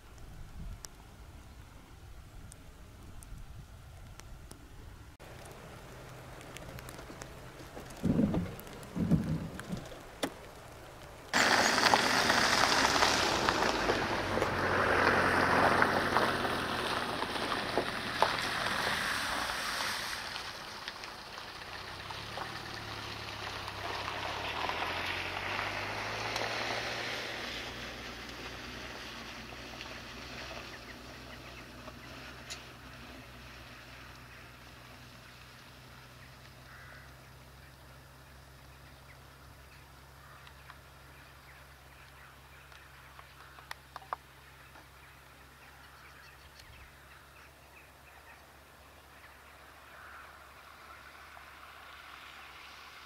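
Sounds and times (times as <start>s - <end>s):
low engine hum: 0.0s - 53.0s
dull low thumps: 7.6s - 10.0s.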